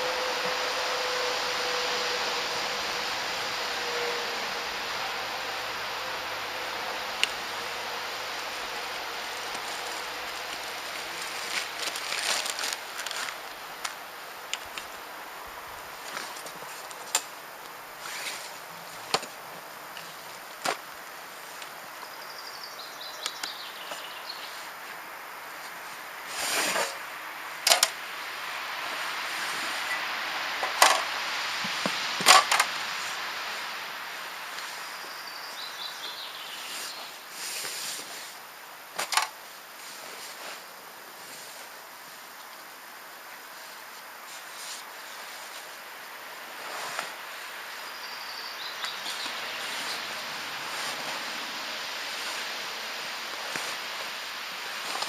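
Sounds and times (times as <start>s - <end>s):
fabric rustling: 8.3s - 14.0s, 49.0s - 52.6s.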